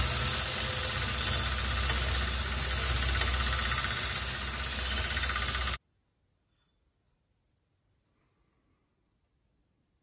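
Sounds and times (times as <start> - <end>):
belt grinder grinding metal: 0.0 - 5.8
motor hum: 0.0 - 5.8.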